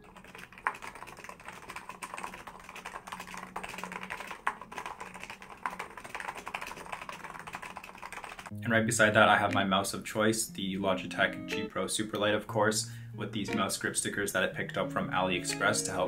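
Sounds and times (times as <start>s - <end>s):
fast keyboard typing: 0.0s - 8.5s.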